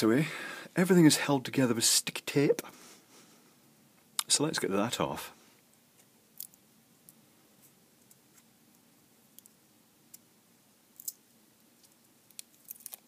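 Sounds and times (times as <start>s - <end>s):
small clicks of peeling tape: 6.4s - 6.6s.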